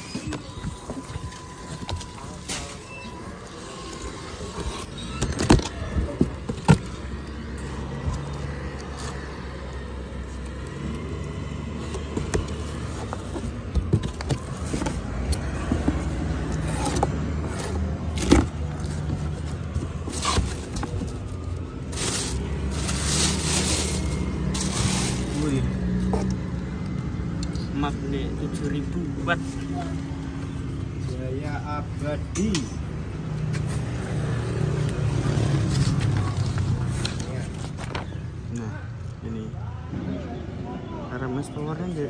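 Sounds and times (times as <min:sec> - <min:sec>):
plastic bag rustling: 0:17.6 - 0:25.8.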